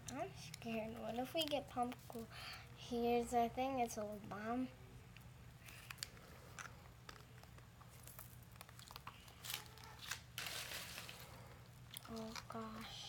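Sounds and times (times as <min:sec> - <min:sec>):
plastic wrapping crinkling and tearing: 0:05.6 - 0:12.8.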